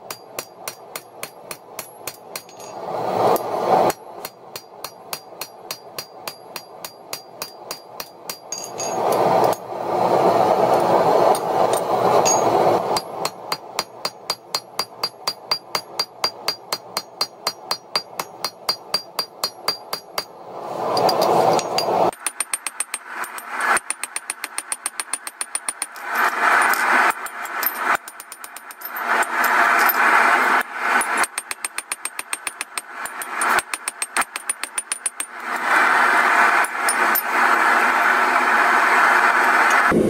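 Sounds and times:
hammer striking metal on anvil: 0.0s - 9.6s, 11.3s - 20.3s, 31.0s - 35.4s
loud rushing noise: 2.7s - 4.2s, 8.7s - 13.8s, 20.3s - 22.2s, 35.4s - 40.0s.

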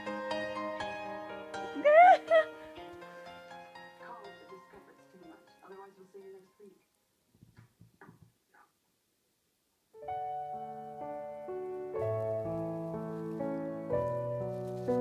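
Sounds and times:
background piano music: 0.0s - 6.8s, 10.0s - 15.0s.

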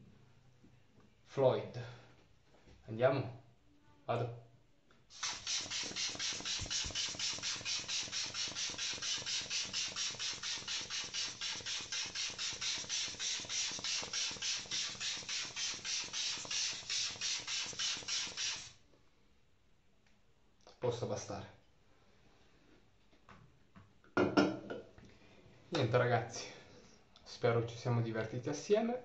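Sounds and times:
pump spray hissing puffs: 5.1s - 18.8s.

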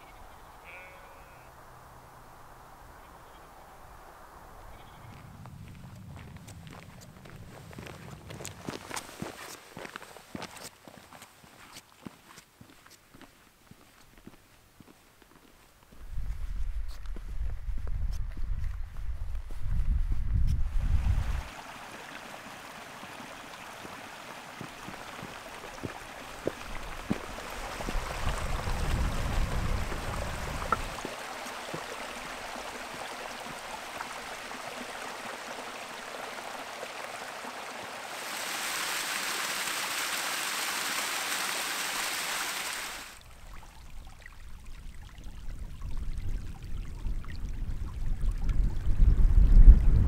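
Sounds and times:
water rushing over rocks: 21.1s - 43.5s.

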